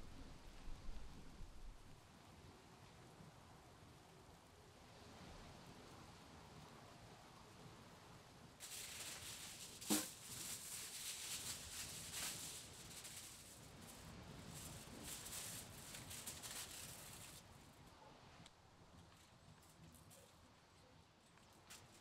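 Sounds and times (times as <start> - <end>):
sharp foil snap: 8.6 - 13.5
aluminium foil crackling: 8.6 - 17.8, 21.3 - 22.0.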